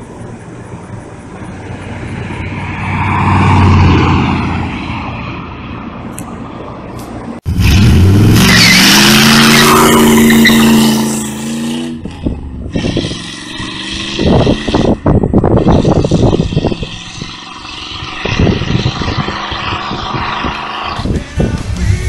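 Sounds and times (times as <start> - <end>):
car engine revving: 7.5 - 22.0
tyres squealing: 8.3 - 11.8.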